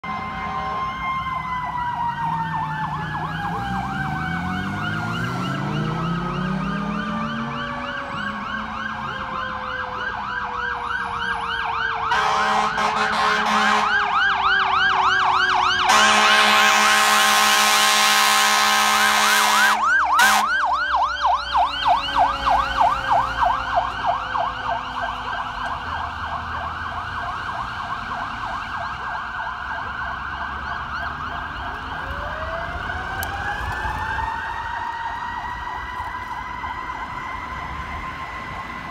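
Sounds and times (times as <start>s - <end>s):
mechanical siren wailing: 0.0s - 38.9s
electronic siren yelping: 0.1s - 38.9s
vehicle engine revving: 3.3s - 9.0s
air horn blasts: 12.1s - 14.1s, 15.8s - 20.6s.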